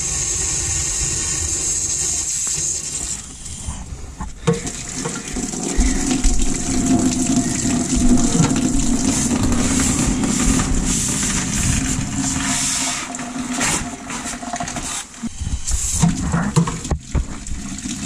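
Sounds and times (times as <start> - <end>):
hissing water spray: 0.0 - 3.9, 4.9 - 16.6
water gushing and splashing: 4.3 - 18.0.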